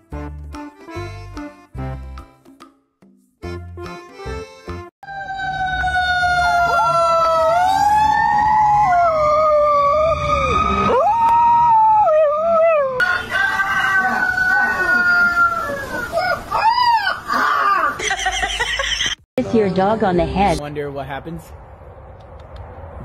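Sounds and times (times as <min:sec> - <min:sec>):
dog howling: 0:05.0 - 0:13.0, 0:14.0 - 0:18.0
fire engine siren wailing: 0:05.0 - 0:16.0.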